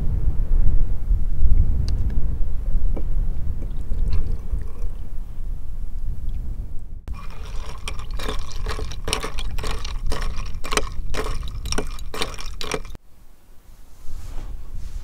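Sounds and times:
spoon and ice clinking in glass: 7.1 - 13.0.

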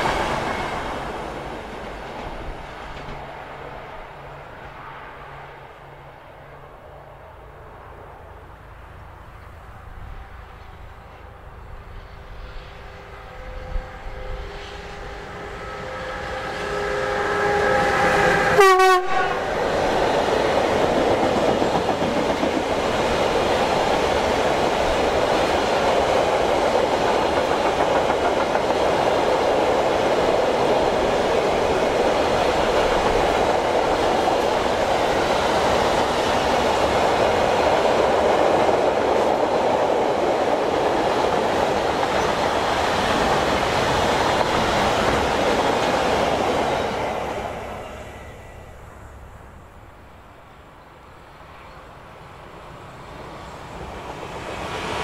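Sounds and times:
train wheels on rail: 0.0 - 55.0
locomotive horn: 12.7 - 19.6.

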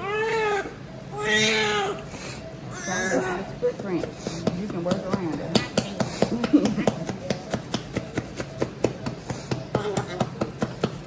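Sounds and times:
newborn crying: 0.0 - 2.1, 2.7 - 3.5.

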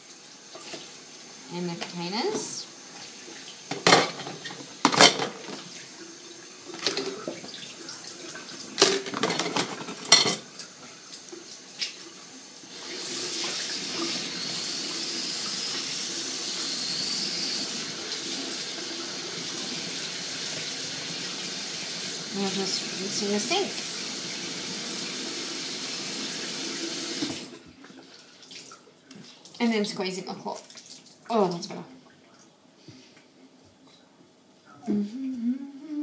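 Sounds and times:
water running into sink: 0.0 - 32.0
tongs and containers clattering: 3.7 - 5.6, 8.8 - 10.5.

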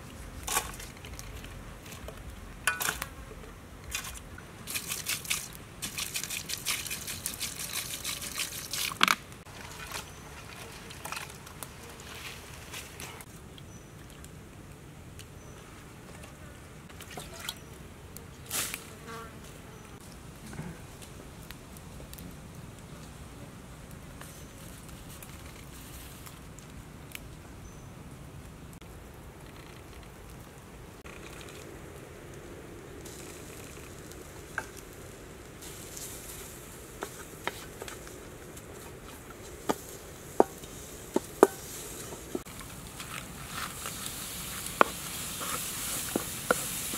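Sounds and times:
prawns clicking and squelching: 3.8 - 12.1
wooden spatula scraping a pan: 41.2 - 46.9.

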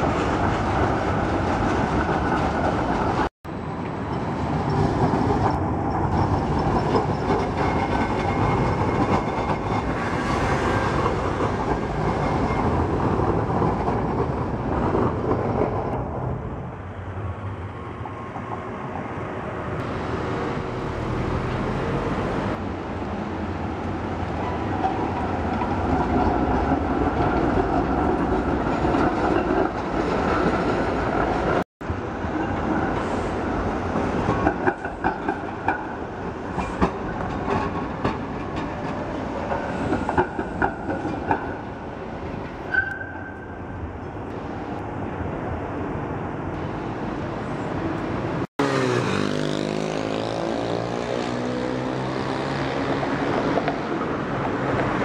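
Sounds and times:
tram wheels clicking over rail joints: 0.1 - 16.0, 33.8 - 43.1
high wheel squeal: 11.8 - 12.9, 42.7 - 43.6.

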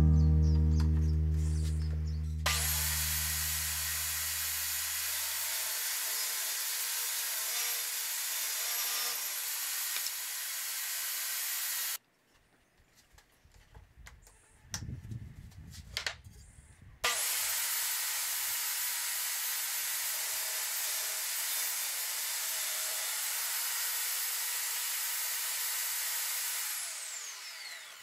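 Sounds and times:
table saw ripping board: 2.4 - 10.2.

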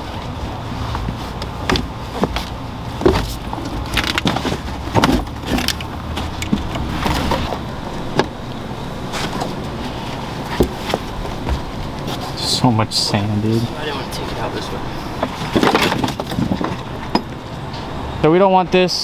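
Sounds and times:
low steady rumble: 0.0 - 19.0.

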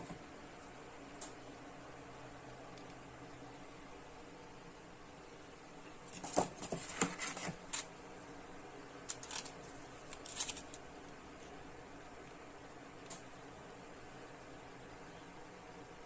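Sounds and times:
paper cards rustling on foam: 6.1 - 7.9, 9.1 - 10.8.

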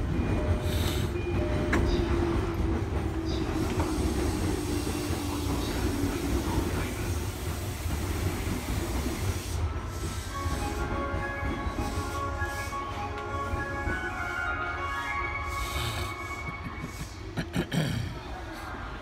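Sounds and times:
train wheels rumbling on rail: 0.0 - 14.4
faint train whine: 0.0 - 17.4.

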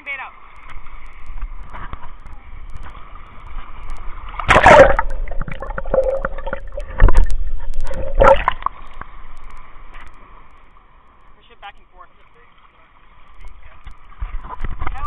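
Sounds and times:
seawater splashing: 0.0 - 15.0
muffled underwater gurgling: 0.4 - 10.3.

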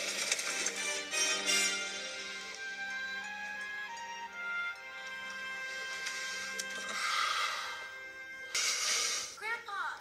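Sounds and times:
film score music: 0.0 - 10.0.

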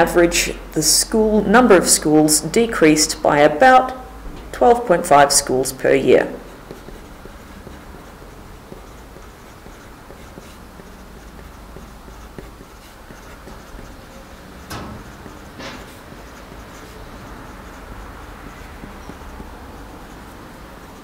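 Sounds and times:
steady low hum: 0.0 - 21.0
pen writing on paper: 6.0 - 21.0.

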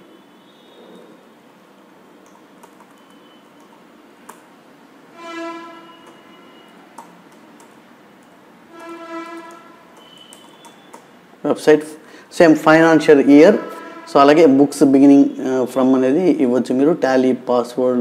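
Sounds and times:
keyboard typing clicks: 2.2 - 4.5, 6.0 - 11.1
steady pitched hum: 2.8 - 11.4, 12.0 - 15.4.

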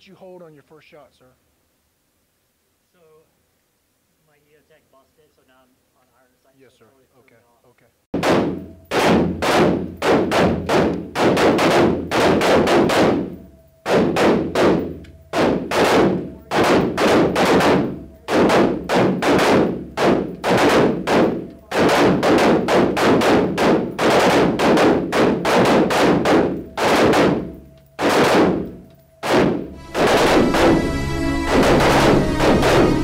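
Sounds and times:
rifle shots echoing indoors: 8.2 - 33.0.

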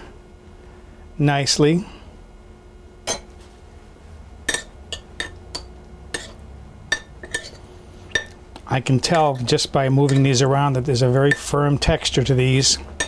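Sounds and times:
metal spoons clinking on bowls: 4.5 - 8.4, 11.2 - 11.6.

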